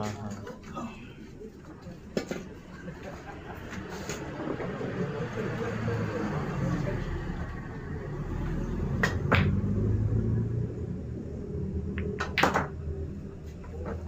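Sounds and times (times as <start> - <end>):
low background rumble: 5.0 - 14.0
pool balls clacking: 9.0 - 9.7, 11.9 - 12.8.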